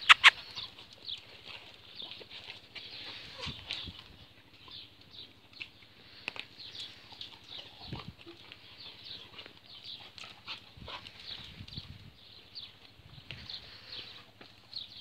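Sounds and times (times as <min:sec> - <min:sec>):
dog sounds: 0:00.0 - 0:00.9.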